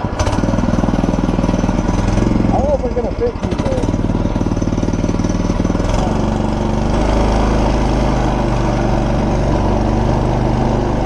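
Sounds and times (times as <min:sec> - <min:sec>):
go-kart engine running: 0:00.0 - 0:11.0.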